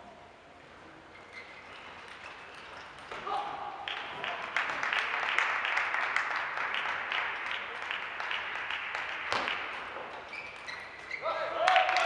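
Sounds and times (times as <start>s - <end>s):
spectators applauding: 3.8s - 9.8s.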